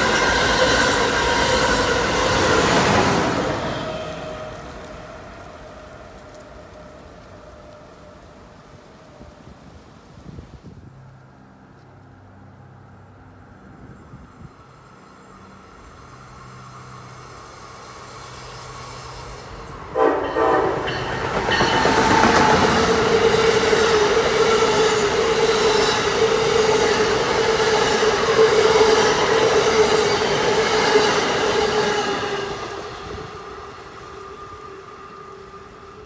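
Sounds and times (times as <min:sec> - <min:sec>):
train horn toots: 0:00.0 - 0:08.4, 0:19.4 - 0:30.2
train passing with wheel noise: 0:00.0 - 0:36.0.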